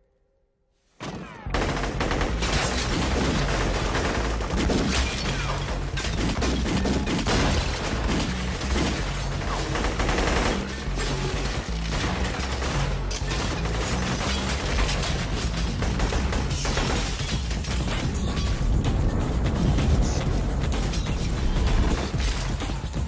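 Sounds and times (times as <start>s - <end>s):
rapid gunfire: 1.0s - 23.0s
music with heavy beat: 5.8s - 23.0s.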